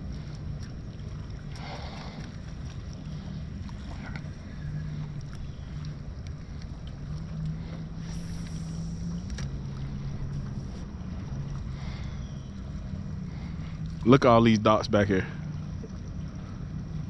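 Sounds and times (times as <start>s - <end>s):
water around a boat: 0.0s - 17.0s
wind: 0.0s - 17.0s
low hum changing pitch: 2.6s - 17.0s
light clicks: 8.4s - 10.5s.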